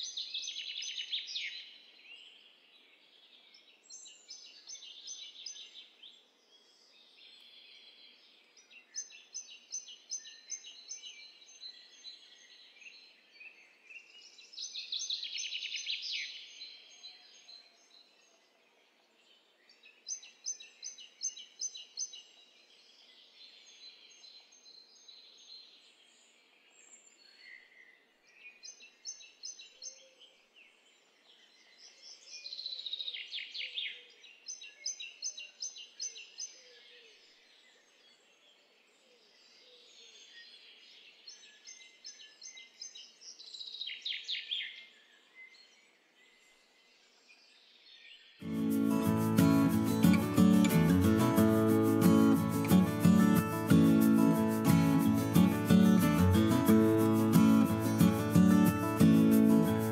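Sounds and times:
small birds chirping: 39.3 - 59.9
faint steady hiss: 48.4 - 59.9.

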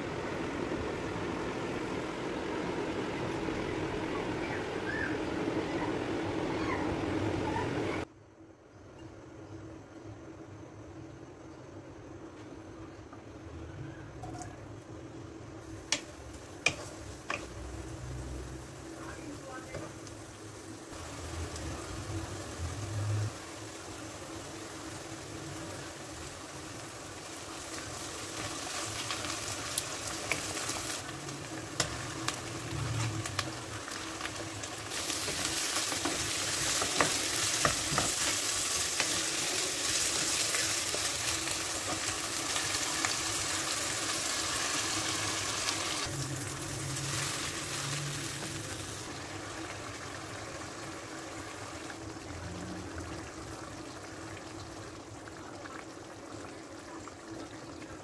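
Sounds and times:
food sizzling in hot oil: 15.6 - 57.8.

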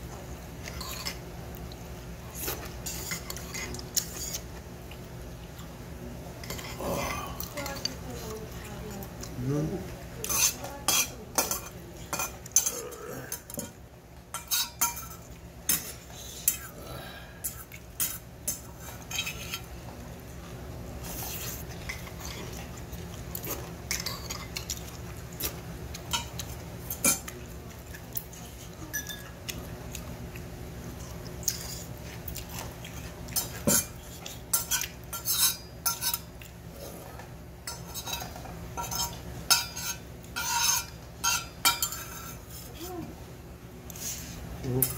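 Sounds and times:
steady low hum: 0.0 - 44.9
metal spoon scraping steel bowl: 37.7 - 42.6.

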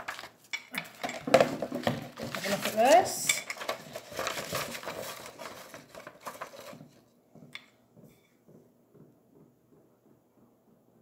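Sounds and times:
paper rustling and crackling: 0.0 - 7.2.

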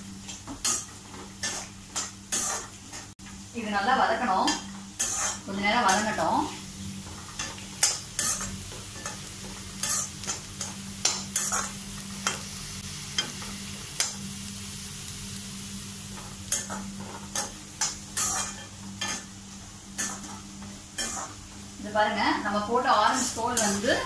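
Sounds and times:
peel sizzling in oil: 0.0 - 3.5, 4.2 - 24.0
metal spatula scraping pan: 0.6 - 3.1, 4.5 - 6.3, 7.1 - 12.4, 16.5 - 19.3, 20.0 - 21.5.

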